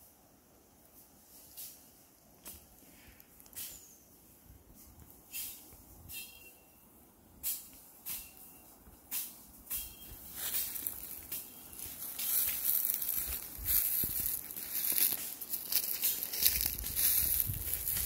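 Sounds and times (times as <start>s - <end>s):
footsteps crunching dry leaves: 9.8s - 18.0s.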